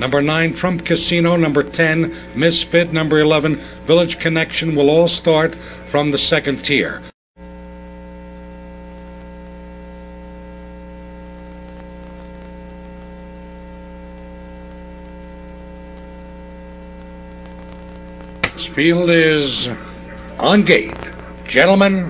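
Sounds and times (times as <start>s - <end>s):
electrical mains hum: 0.0s - 22.0s
static hiss: 7.4s - 22.0s.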